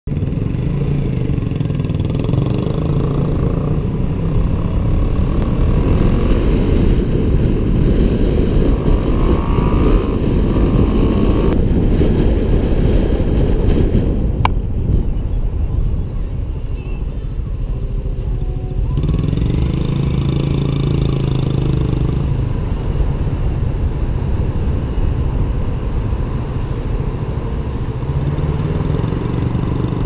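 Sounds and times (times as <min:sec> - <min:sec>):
wind and road noise rumble: 0:00.1 - 0:30.0
faint engine tone: 0:15.1 - 0:30.0.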